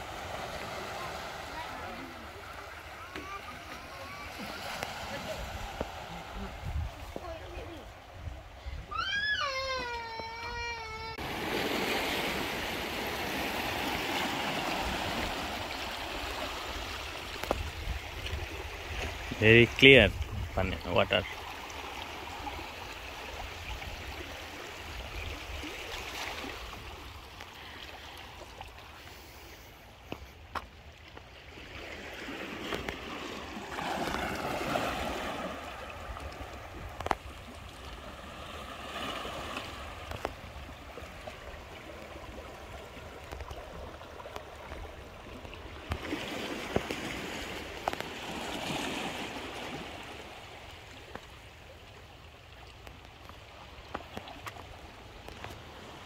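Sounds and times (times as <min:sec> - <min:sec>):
waves washing over rocks: 0:00.0 - 0:08.3, 0:11.2 - 0:29.6, 0:31.5 - 0:51.5.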